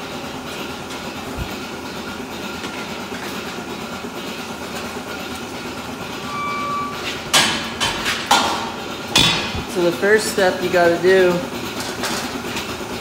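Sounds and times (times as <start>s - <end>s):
milking machinery running: 0.0s - 13.0s
metal gates clanking: 6.1s - 9.7s
short beep: 6.2s - 7.2s.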